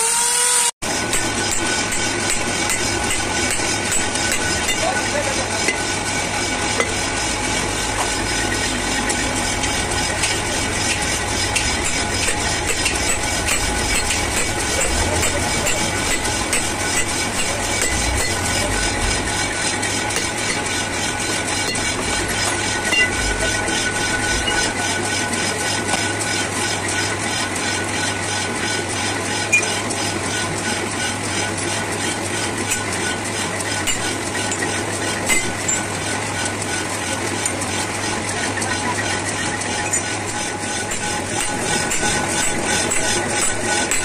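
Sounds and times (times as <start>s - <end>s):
machine running: 0.0s - 44.0s
low hum: 0.9s - 27.0s
hammer striking metal: 1.0s - 26.3s, 32.6s - 32.9s, 33.8s - 35.9s, 39.8s - 44.0s.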